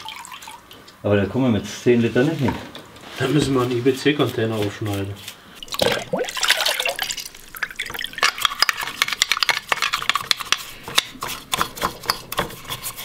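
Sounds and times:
brush scrubbing metal: 0:03.1 - 0:05.4, 0:08.8 - 0:13.0.

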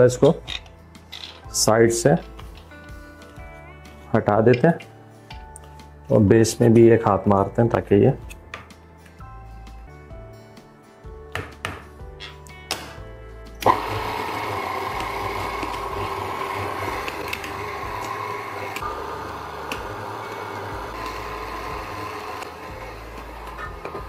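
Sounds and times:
electric stand mixer running: 0:13.6 - 0:24.0.

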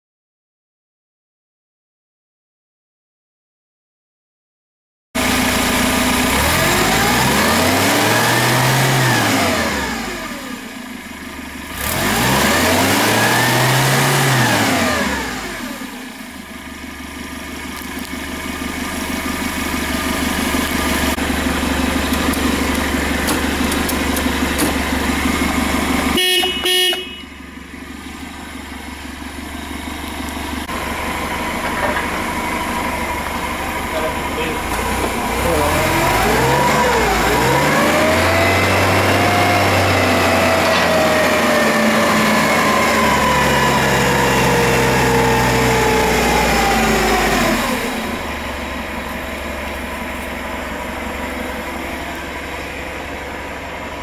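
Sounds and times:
forklift engine revving: 0:05.2 - 0:54.0
forklift horn beeps: 0:26.1 - 0:27.5.

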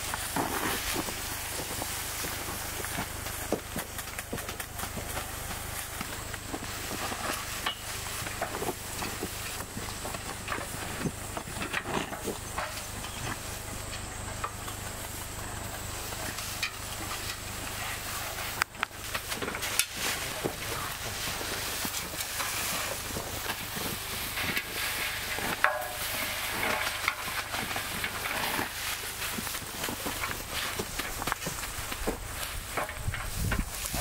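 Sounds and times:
dry rice stalks rustling: 0:00.0 - 0:34.0.

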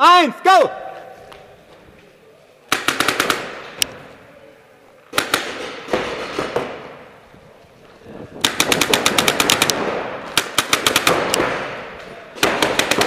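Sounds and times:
paintball markers firing: 0:05.1 - 0:07.0, 0:08.4 - 0:13.0.

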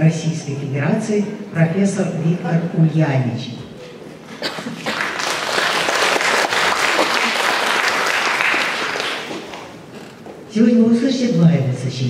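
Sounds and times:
audience applauding: 0:04.4 - 0:09.8.

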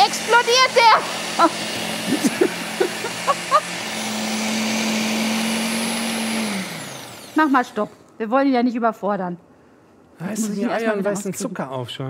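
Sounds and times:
food processor motor humming: 0:00.0 - 0:08.0.

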